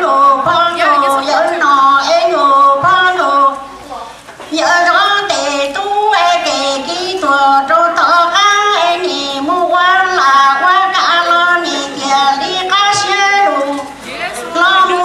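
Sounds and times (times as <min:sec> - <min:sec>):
woman singing into microphone: 0:00.0 - 0:15.0.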